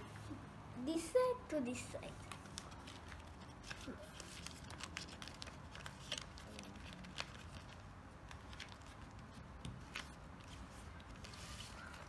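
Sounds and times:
paper crackles: 0:02.1 - 0:12.0
paper folding and rustling: 0:02.1 - 0:12.0.

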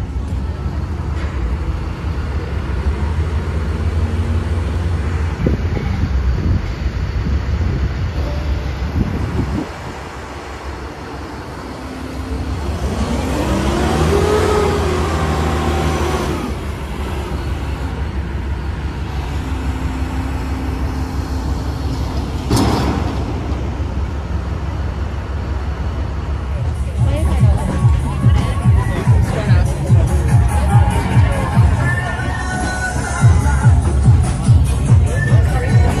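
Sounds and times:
low engine rumble: 0:00.0 - 0:36.0
engine pitch rising and falling: 0:09.0 - 0:25.0.

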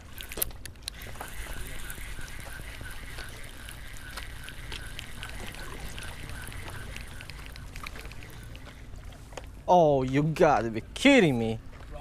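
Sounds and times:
fishing reel ticking: 0:00.0 - 0:09.0
low steady rumble: 0:00.0 - 0:09.7.

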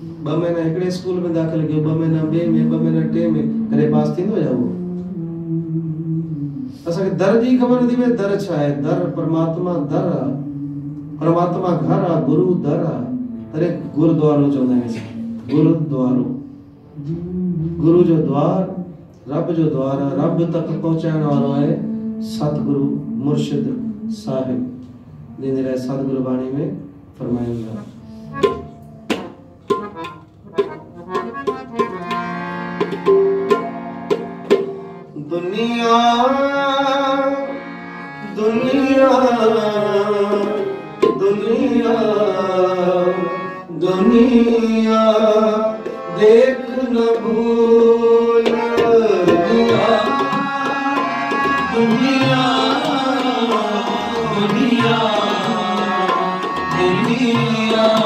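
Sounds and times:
steady held tones: 0:00.0 - 0:58.0
tabla drumming: 0:28.3 - 0:35.6, 0:38.4 - 0:42.6, 0:43.8 - 0:58.0.

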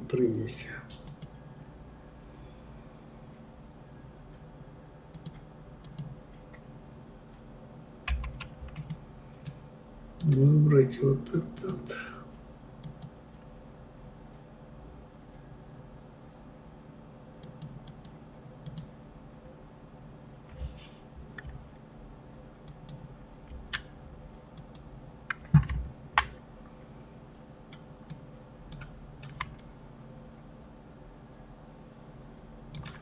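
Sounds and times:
faint steady hum: 0:00.0 - 0:33.0
mouse buttons clicking: 0:05.1 - 0:06.2
keyboard keys clicking: 0:32.8 - 0:33.0.

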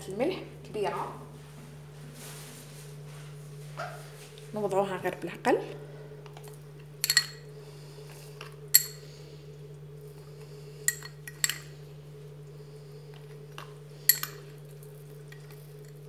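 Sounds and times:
steady low hum: 0:00.0 - 0:16.0
metal spoon clinking on funnel: 0:07.0 - 0:07.4, 0:08.8 - 0:09.0, 0:10.9 - 0:11.7, 0:14.1 - 0:14.4.

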